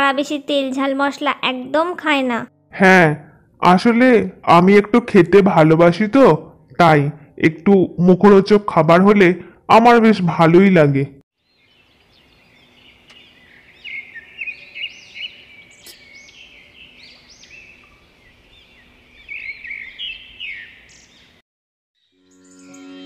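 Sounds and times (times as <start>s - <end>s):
birds chirping: 11.4s - 21.4s.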